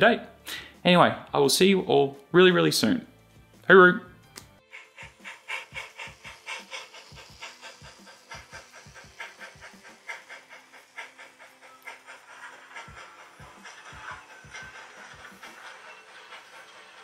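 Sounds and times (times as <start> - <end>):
model steam locomotive chuffing: 4.7 - 17.0.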